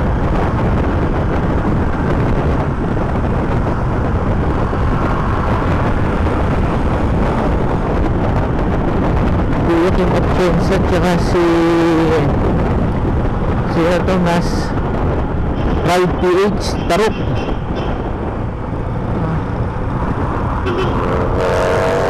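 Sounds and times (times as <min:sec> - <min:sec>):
road noise: 0:00.0 - 0:22.0
wind rushing over microphone: 0:00.0 - 0:22.0.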